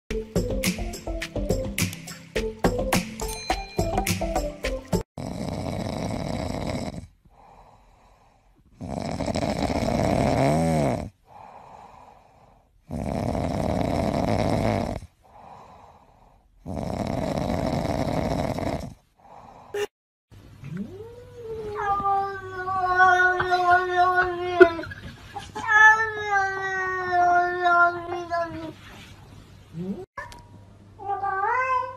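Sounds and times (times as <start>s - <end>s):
cat snoring: 5.2s - 19.6s
faint breaths: 7.2s - 8.8s, 11.2s - 12.8s, 15.1s - 16.6s
cat meowing: 20.8s - 24.8s, 31.0s - 31.9s.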